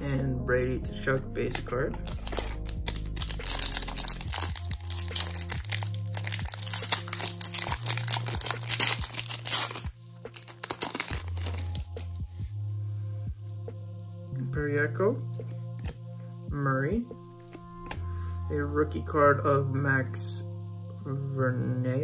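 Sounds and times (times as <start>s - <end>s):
background music: 0.0s - 22.0s
foil pack crinkling and tearing: 2.0s - 12.1s.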